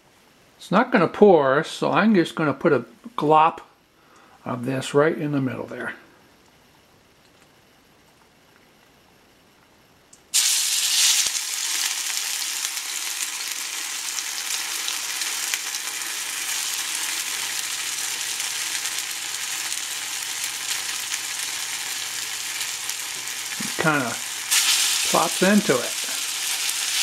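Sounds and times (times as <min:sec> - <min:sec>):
batter sizzling in hot oil: 0:10.3 - 0:27.0.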